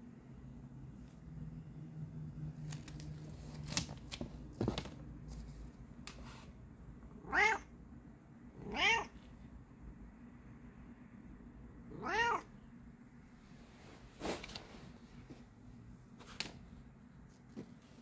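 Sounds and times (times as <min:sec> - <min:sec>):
cat meowing: 0:07.2 - 0:07.7, 0:08.6 - 0:09.2, 0:11.9 - 0:12.5.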